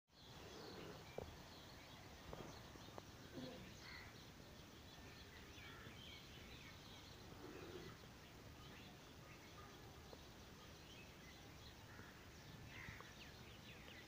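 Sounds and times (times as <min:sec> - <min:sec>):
low background noise: 0:00.1 - 0:14.0
small birds chirping: 0:00.1 - 0:14.0.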